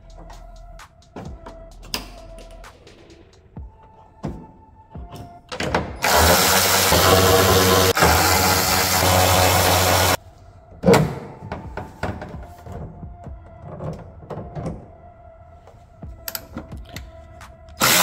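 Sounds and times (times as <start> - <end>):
cordless power tool loosening bolt: 17.8 - 18.0.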